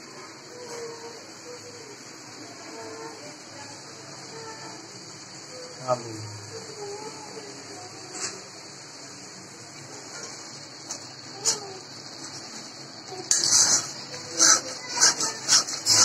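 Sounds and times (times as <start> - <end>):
metal spatula scraping pan: 13.3 - 16.0.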